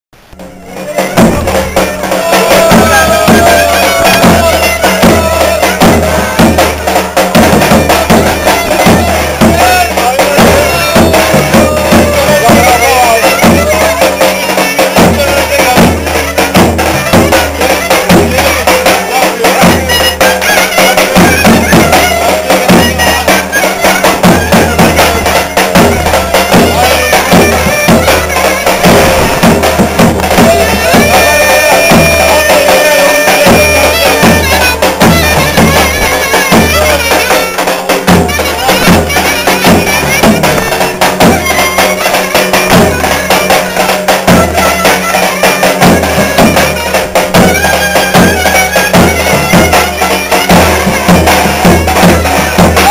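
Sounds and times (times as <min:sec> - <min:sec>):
wind instrument melody: 0:00.2 - 0:52.9
bass drum beating: 0:00.4 - 0:14.0, 0:24.0 - 0:37.2.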